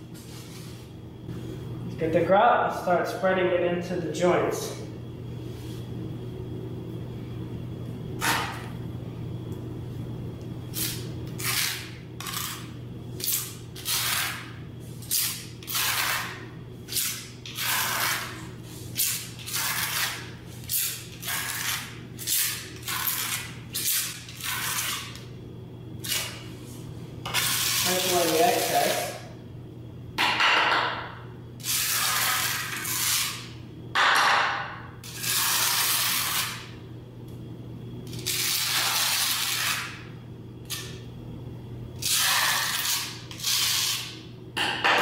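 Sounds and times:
steady low hum: 0:00.0 - 0:45.0
hand tool scraping grout: 0:16.9 - 0:18.4, 0:19.0 - 0:21.9, 0:27.3 - 0:29.2.

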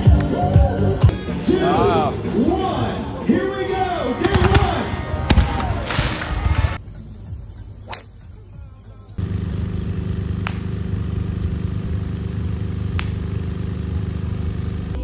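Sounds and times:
steady low hum: 0:09.2 - 0:15.0
golf driver striking ball: 0:10.3 - 0:11.0, 0:12.4 - 0:13.6.

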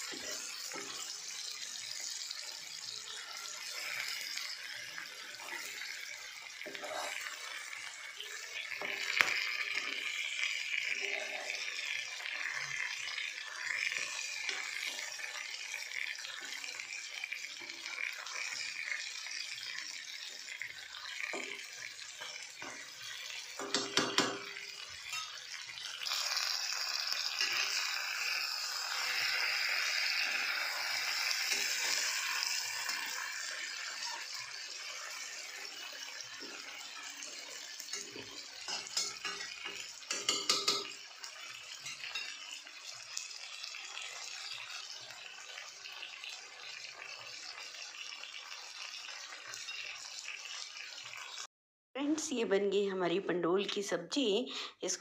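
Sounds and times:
food sizzling in oil: 0:00.0 - 0:51.5
spatula knocking against pan: 0:23.6 - 0:24.5, 0:40.1 - 0:40.9.

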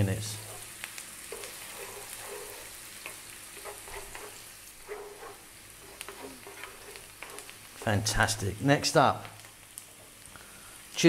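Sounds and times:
vegetables sizzling in a frying pan: 0:00.0 - 0:11.0
wooden spoon scraping a pan: 0:00.4 - 0:08.2.

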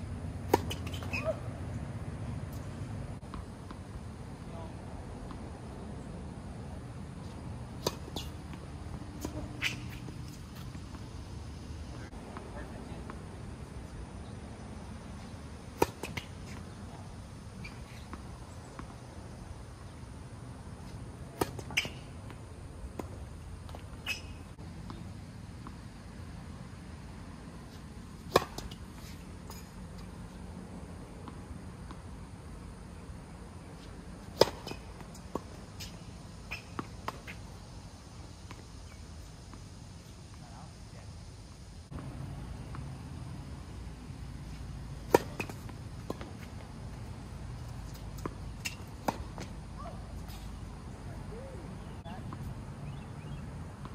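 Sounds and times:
low background noise: 0:00.0 - 0:53.9
tennis ball impact: 0:00.4 - 0:01.5, 0:07.2 - 0:11.1, 0:15.7 - 0:17.1, 0:21.2 - 0:25.0, 0:28.1 - 0:30.0, 0:34.2 - 0:37.4, 0:44.6 - 0:50.4
tennis ball hit: 0:07.8 - 0:10.7, 0:15.8 - 0:16.7, 0:28.2 - 0:28.8, 0:34.3 - 0:35.5, 0:45.0 - 0:46.5.

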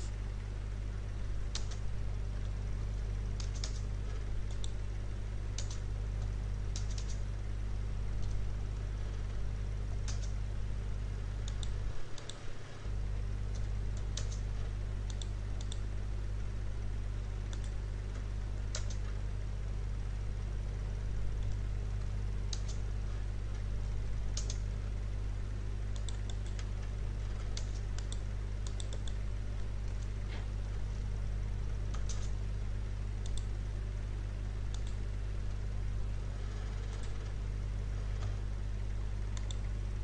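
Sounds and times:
low electrical hum: 0:00.0 - 0:40.0
computer keyboard keystrokes: 0:01.5 - 0:01.8, 0:03.4 - 0:04.8, 0:05.6 - 0:05.8, 0:06.7 - 0:07.2, 0:10.0 - 0:10.4, 0:13.6 - 0:14.4, 0:15.1 - 0:15.8, 0:18.7 - 0:19.1, 0:22.5 - 0:22.8, 0:24.4 - 0:24.6, 0:26.0 - 0:26.7, 0:27.4 - 0:29.2, 0:31.9 - 0:32.4.

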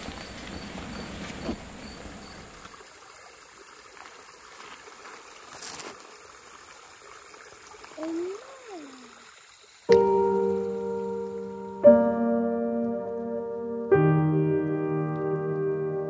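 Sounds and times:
insect chirping rapidly: 0:00.0 - 0:02.7
creek running: 0:00.0 - 0:13.3.

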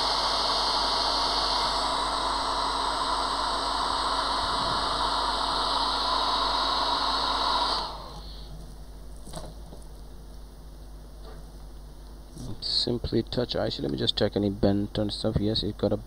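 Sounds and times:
hot air station hissing: 0:00.0 - 0:08.8.

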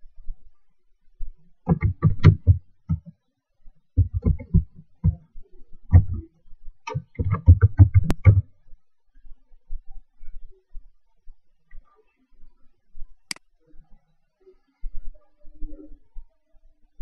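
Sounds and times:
laptop keyboard typing: 0:01.7 - 0:03.1, 0:04.0 - 0:05.2, 0:06.9 - 0:08.4.

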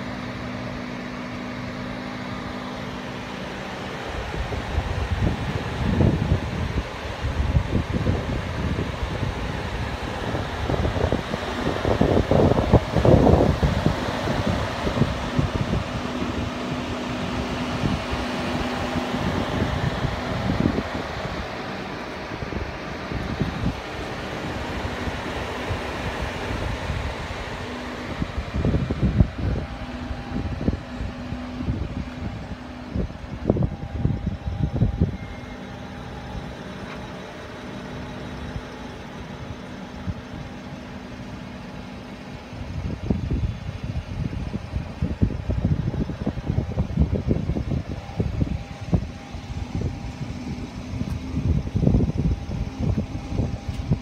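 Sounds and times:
fan-like mechanical hum: 0:00.0 - 0:54.0
wind buffeting microphone: 0:01.6 - 0:54.0
faint held tone: 0:29.2 - 0:40.3.

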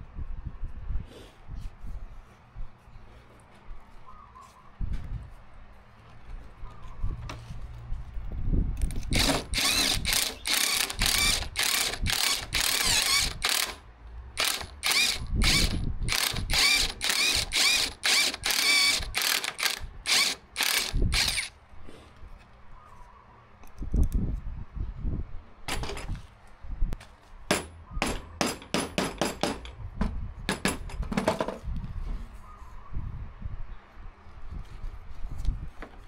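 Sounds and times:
drill motor whining: 0:08.9 - 0:13.8, 0:14.4 - 0:21.5.

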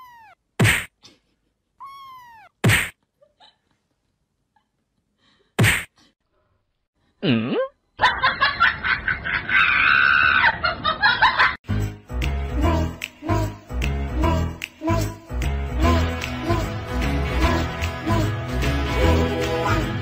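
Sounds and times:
cat cry: 0:00.0 - 0:00.4, 0:01.8 - 0:02.6.

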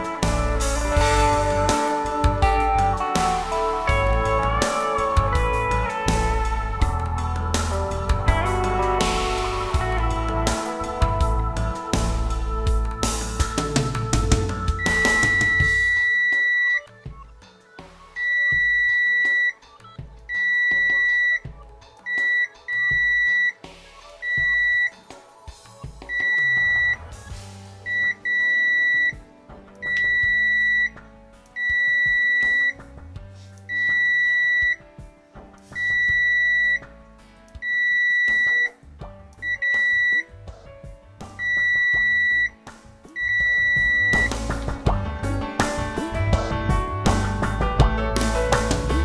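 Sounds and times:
multimeter continuity beeps: 0:14.8 - 0:17.0, 0:18.2 - 0:23.6, 0:24.2 - 0:25.0, 0:26.1 - 0:27.0, 0:27.9 - 0:29.2, 0:29.8 - 0:31.0, 0:31.6 - 0:32.8, 0:33.7 - 0:34.8, 0:35.8 - 0:36.9, 0:37.6 - 0:38.8, 0:39.4 - 0:40.3, 0:41.4 - 0:42.6, 0:43.2 - 0:44.4.

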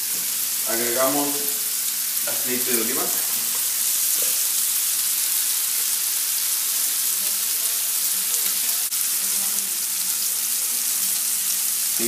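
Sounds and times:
bacon sizzling in a skillet: 0:00.0 - 0:12.0.

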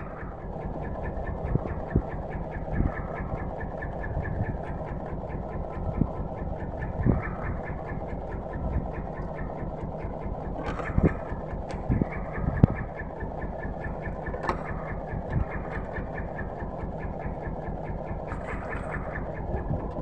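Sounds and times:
boat engine running at low revs: 0:00.0 - 0:20.0.

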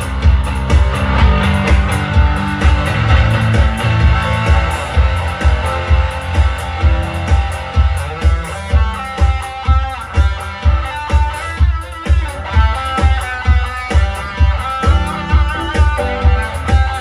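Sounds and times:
electric guitar: 0:00.0 - 0:17.0
keyboards playing: 0:00.0 - 0:17.0
kick drum beat: 0:00.0 - 0:17.0.

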